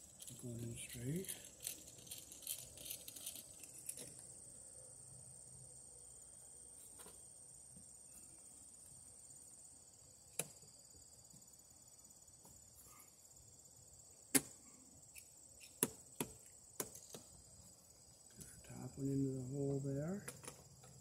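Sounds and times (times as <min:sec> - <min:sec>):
insects chirping: 0:00.0 - 0:21.0
plastic clicks and knocks: 0:20.2 - 0:21.0.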